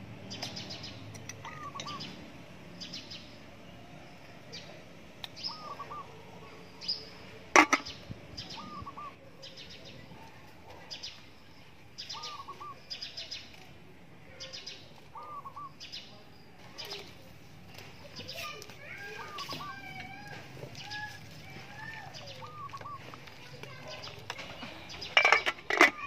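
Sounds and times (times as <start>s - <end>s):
high trilled bird chirps: 1.4s - 2.2s
lower bird call: 5.4s - 9.8s, 15.1s - 15.9s.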